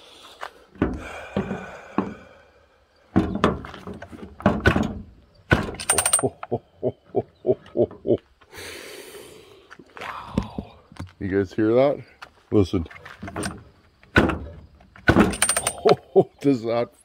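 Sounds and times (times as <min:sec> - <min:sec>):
chainsaw mechanical clicks and clunks: 0:05.5 - 0:06.6, 0:14.8 - 0:16.0.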